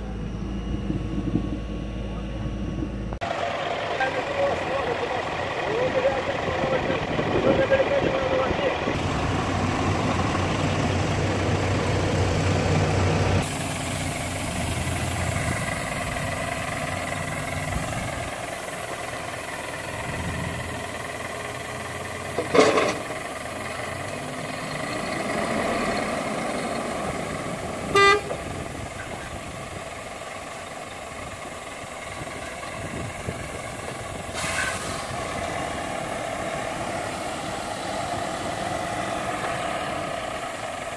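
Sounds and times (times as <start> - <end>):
heavy diesel engines running: 0.0 - 40.9
short horn toot: 27.9 - 28.4.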